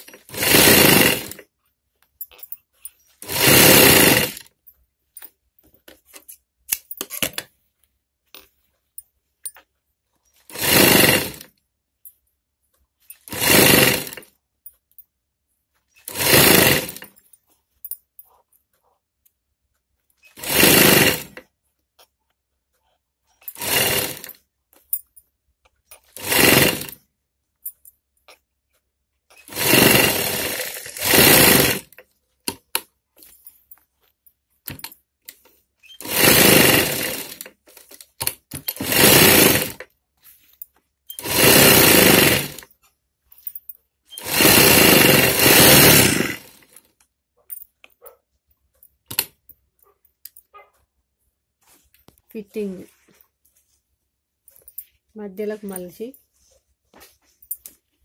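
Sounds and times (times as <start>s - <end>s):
sewing machine stitching: 0.0s - 1.5s, 2.4s - 4.5s, 10.3s - 11.6s, 13.1s - 14.4s, 15.9s - 17.3s, 20.2s - 21.5s, 23.4s - 25.0s, 25.9s - 27.1s, 29.3s - 33.3s, 34.7s - 40.4s, 41.1s - 42.8s, 43.6s - 46.9s.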